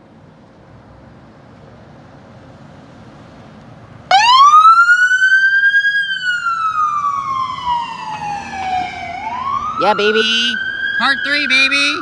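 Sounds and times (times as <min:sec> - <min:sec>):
siren wailing: 0:04.1 - 0:12.0.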